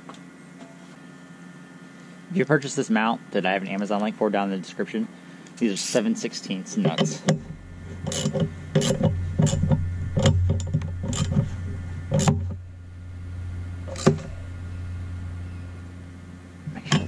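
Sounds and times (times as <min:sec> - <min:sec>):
steady low hum: 0:00.0 - 0:17.0
metal clicks and knocks: 0:06.9 - 0:11.5, 0:12.1 - 0:12.6.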